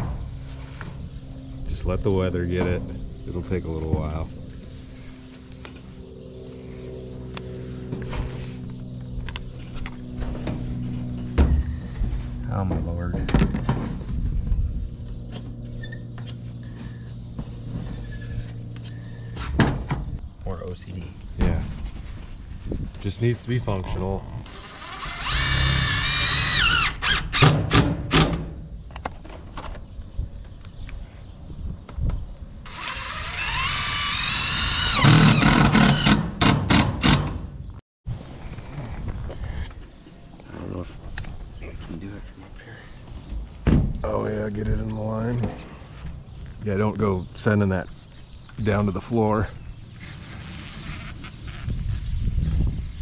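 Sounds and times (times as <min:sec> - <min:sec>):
steady low hum: 0:00.0 - 0:27.0
drill driving fastener into metal: 0:24.5 - 0:28.4, 0:32.7 - 0:37.4.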